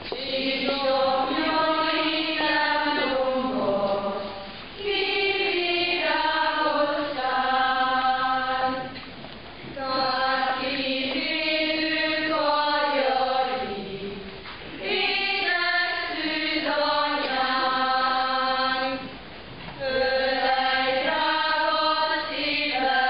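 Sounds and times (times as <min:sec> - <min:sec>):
congregation singing a hymn: 0:00.0 - 0:23.0.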